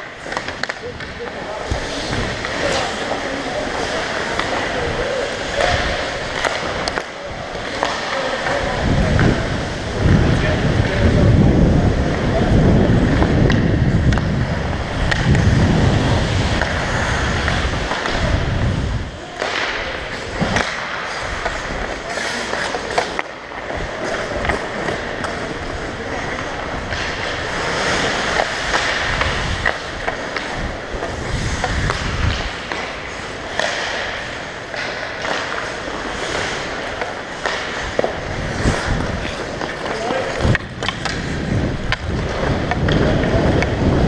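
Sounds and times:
hockey sticks and puck clacking: 0.0s - 44.0s
players' voices: 0.0s - 44.0s
skate blades scraping ice: 0.0s - 44.0s
heavy low rumble on microphone: 8.4s - 19.2s.

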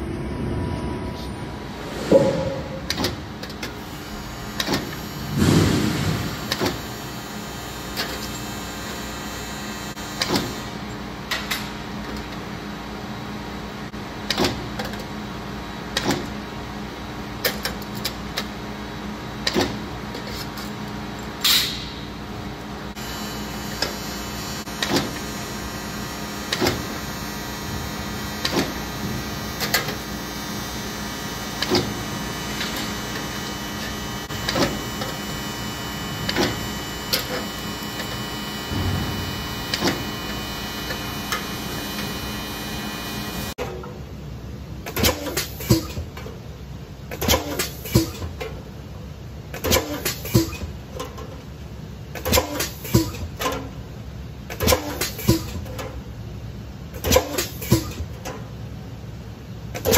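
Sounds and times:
machine motor hum: 1.6s - 10.8s, 22.1s - 43.6s.

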